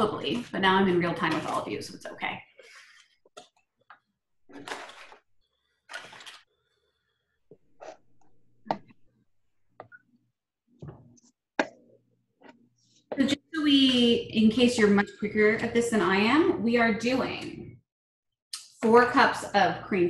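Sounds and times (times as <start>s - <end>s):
wrapper rustling: 4.5s - 6.6s.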